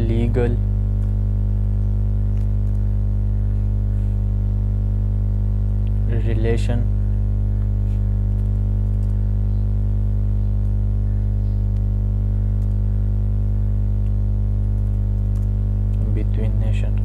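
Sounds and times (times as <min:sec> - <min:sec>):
loud electrical hum: 0:00.0 - 0:17.0
faint keyboard clicks: 0:14.0 - 0:16.1.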